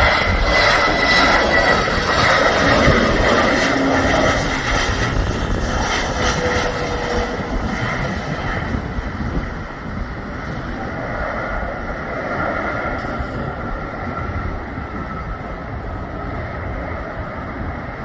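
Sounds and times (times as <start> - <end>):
jet engines whining: 0.0 - 18.0.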